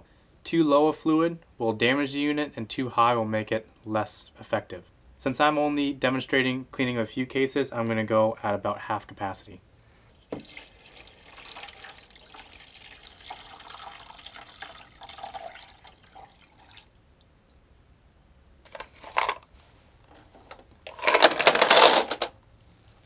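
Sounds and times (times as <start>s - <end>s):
liquid pouring into tank: 10.3s - 16.9s
brass cases clattering into basket: 18.7s - 19.4s, 20.9s - 22.3s
metal clinks: 20.9s - 22.3s.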